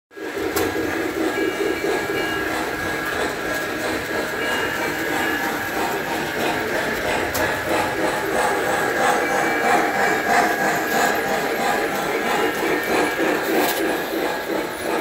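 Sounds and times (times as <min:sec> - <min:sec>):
model train rolling rumble: 0:00.2 - 0:15.0.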